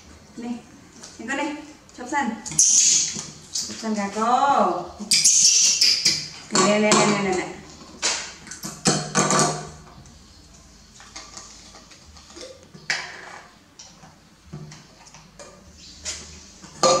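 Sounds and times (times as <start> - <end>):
plastic bottles knocking on table: 8.0 - 9.8, 16.8 - 17.0.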